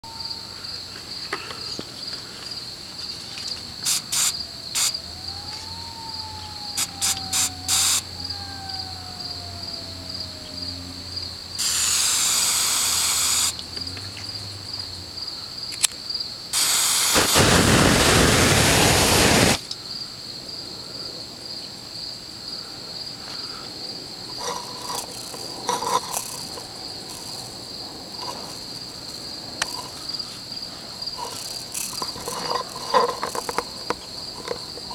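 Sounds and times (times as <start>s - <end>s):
insects trilling: 0.0s - 34.9s
loud hissing rushing noise: 3.8s - 5.0s, 11.6s - 13.6s, 16.6s - 19.6s
sharp clicks: 3.8s - 5.7s.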